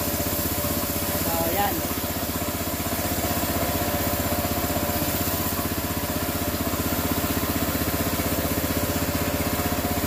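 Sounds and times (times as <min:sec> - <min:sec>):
small engine running: 0:00.0 - 0:10.0
water jet hissing on concrete: 0:00.0 - 0:10.0.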